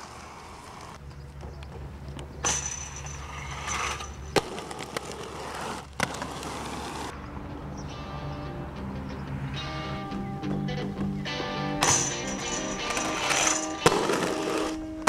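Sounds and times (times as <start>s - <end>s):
skate landing clacks: 0.0s - 7.1s, 11.8s - 15.0s
skate wheels rolling on asphalt: 0.0s - 7.3s, 11.8s - 15.0s.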